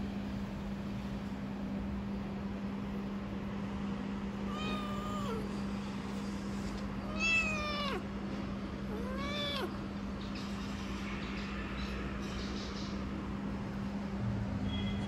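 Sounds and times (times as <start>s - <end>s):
steady low hum: 0.0s - 15.0s
kitten meowing: 4.5s - 5.5s, 7.0s - 8.0s, 8.9s - 9.8s.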